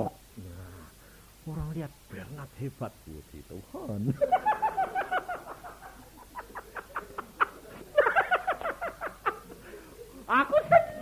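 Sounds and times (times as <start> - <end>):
person laughing: 4.2 - 11.0.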